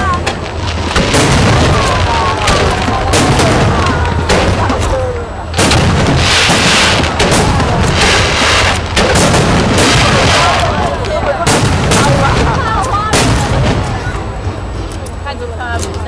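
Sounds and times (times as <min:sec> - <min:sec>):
firework shells bursting: 0:00.0 - 0:15.0.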